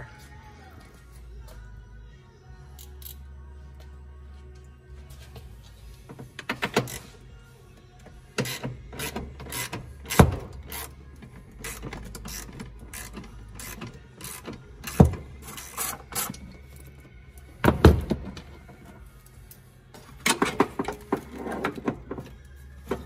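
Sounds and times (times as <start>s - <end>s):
ratchet wrench clicking: 2.8s - 3.2s, 8.4s - 11.0s, 11.6s - 16.9s.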